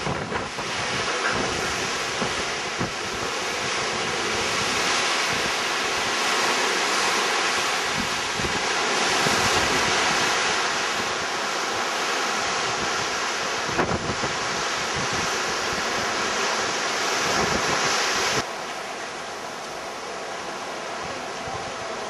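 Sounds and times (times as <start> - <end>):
wind buffeting microphone: 0.0 - 18.5
water rushing along ship hull: 0.0 - 22.0.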